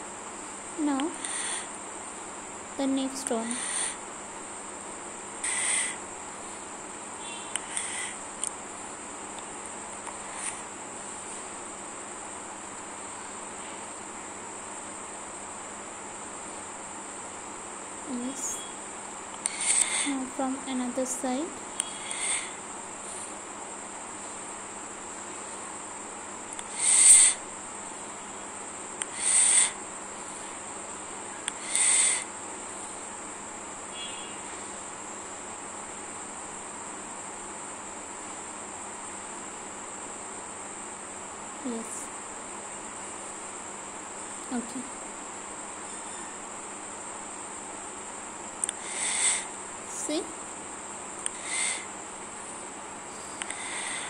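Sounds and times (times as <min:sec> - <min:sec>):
crickets trilling: 0:00.0 - 0:54.0
short animal calls: 0:05.4 - 0:06.0, 0:26.7 - 0:27.4, 0:29.1 - 0:29.8, 0:51.4 - 0:51.9.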